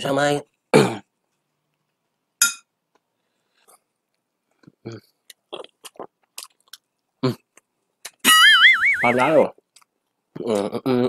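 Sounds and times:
chewing and mouth sounds: 4.6s - 8.2s.

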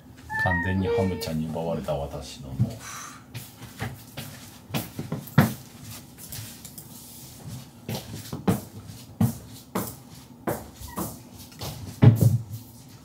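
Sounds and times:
footsteps on hard floor: 3.3s - 6.6s, 7.4s - 13.0s.

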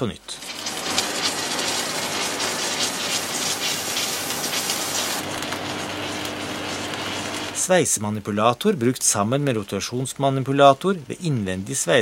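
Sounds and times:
machine hum: 0.3s - 8.0s
vacuum nozzle sucking powder: 0.4s - 7.7s.

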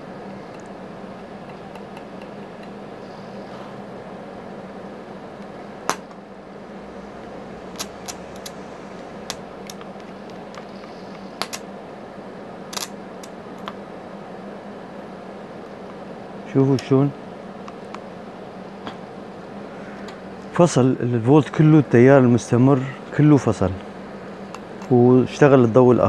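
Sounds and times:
welder machine hum: 0.0s - 26.0s
welding arc cracks: 11.4s - 11.6s, 12.7s - 13.4s.

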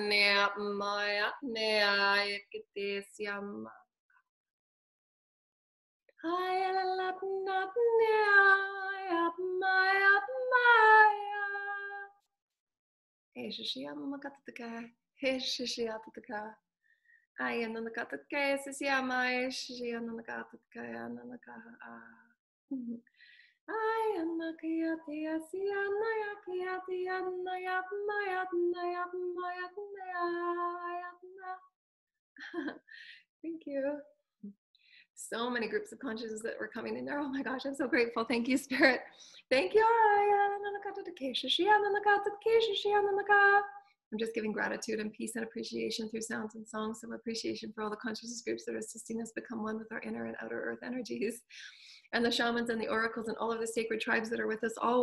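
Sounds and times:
woman chanting wordless syllables: 23.7s - 31.6s, 35.2s - 43.8s
woman singing wordless notes: 23.7s - 31.6s.

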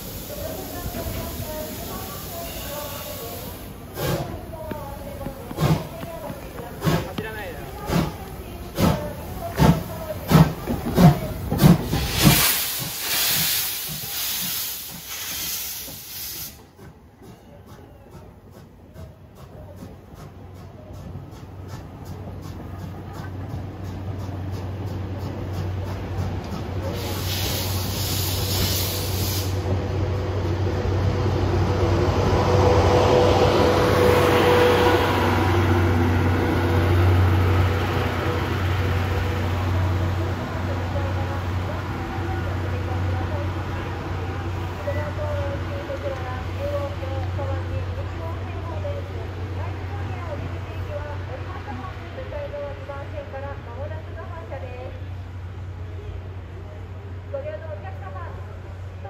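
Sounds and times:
steam locomotive exhaust chuffs: 0.0s - 51.8s
train coaches rumbling past: 0.0s - 59.0s
steam hissing from drain cocks: 5.2s - 16.7s, 26.9s - 29.7s.

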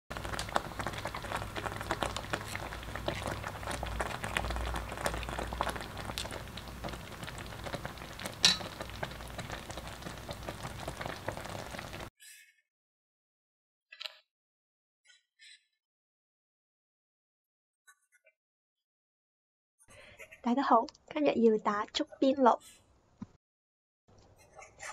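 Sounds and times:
congee bubbles popping: 0.1s - 12.1s.

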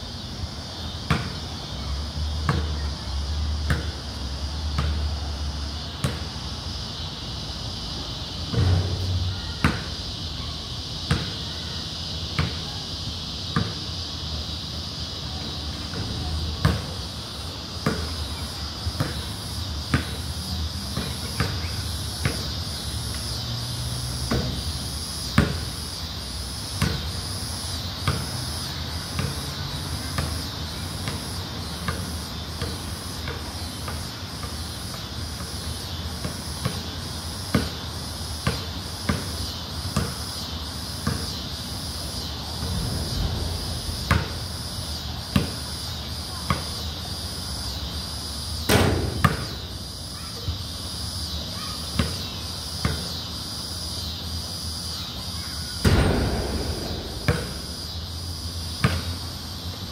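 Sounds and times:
insect chorus: 0.0s - 59.9s
basketball bouncing on concrete: 11.1s - 11.4s, 17.8s - 18.1s, 19.0s - 19.3s, 25.4s - 25.7s, 26.8s - 27.1s, 29.2s - 29.4s, 37.5s - 37.8s, 38.4s - 39.4s, 40.0s - 40.2s, 41.0s - 41.4s, 49.2s - 49.6s, 55.8s - 58.0s, 58.8s - 59.0s
pulsing insect trill: 16.4s - 48.7s, 49.4s - 59.9s.

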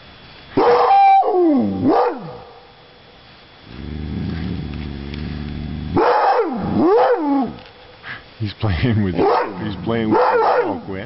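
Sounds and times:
low droning rumble: 3.2s - 10.2s.

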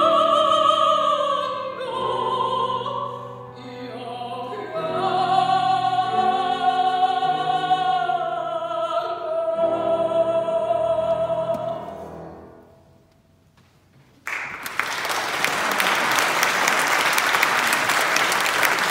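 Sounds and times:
woman singing opera: 0.0s - 12.0s
audience applauding: 14.2s - 18.9s.

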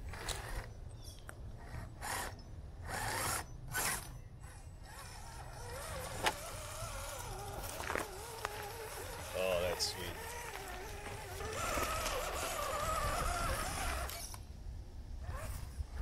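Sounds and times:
electric motor and gears whining: 0.0s - 14.5s, 15.2s - 16.0s
short scraping bursts: 1.6s - 14.4s.

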